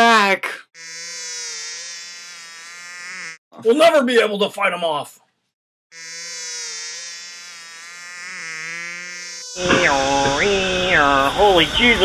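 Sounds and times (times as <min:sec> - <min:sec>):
cicadas buzzing: 0:00.8 - 0:03.4, 0:05.9 - 0:12.0.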